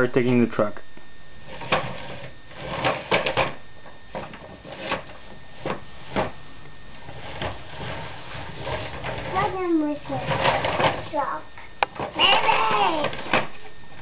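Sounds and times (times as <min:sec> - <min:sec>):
toys knocking and clattering: 0:08.6 - 0:11.1, 0:11.8 - 0:13.6.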